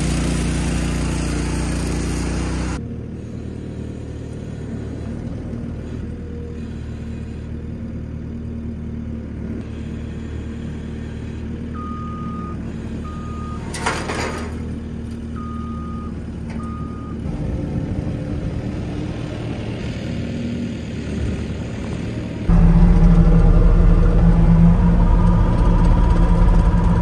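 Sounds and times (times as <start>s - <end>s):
loader engine running: 0.0s - 27.0s
backup alarm beeping: 15.4s - 17.3s.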